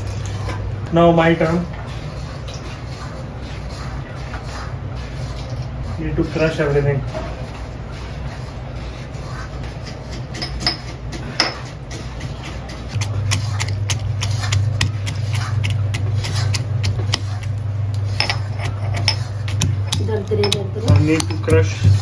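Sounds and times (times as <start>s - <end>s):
steady low hum: 0.0s - 22.0s
pestle knocking in stone mortar: 9.9s - 17.5s, 18.2s - 22.0s.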